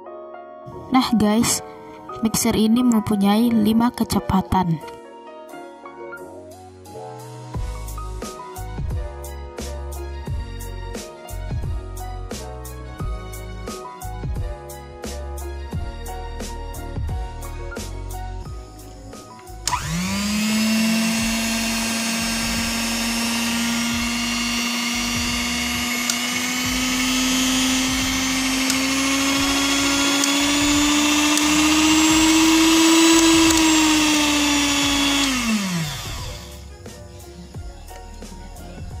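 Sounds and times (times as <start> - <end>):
hand mixer motor whine: 19.6 - 37.6.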